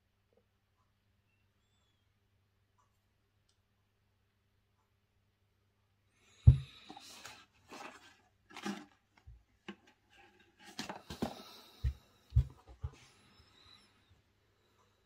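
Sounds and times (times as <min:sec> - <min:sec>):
dull thumps: 0:06.4 - 0:07.0, 0:11.2 - 0:13.0
packaging rustling: 0:06.9 - 0:11.8.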